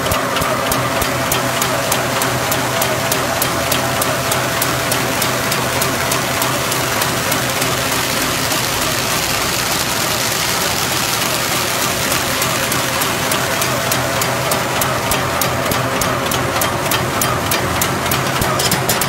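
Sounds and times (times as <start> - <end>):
machine hissing mechanical noise: 4.1 - 14.8.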